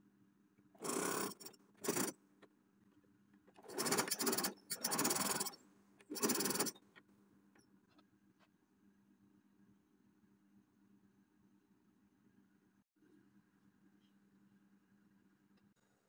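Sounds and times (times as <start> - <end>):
electric sewing machine stitching: 0.8 - 2.1, 3.6 - 6.8.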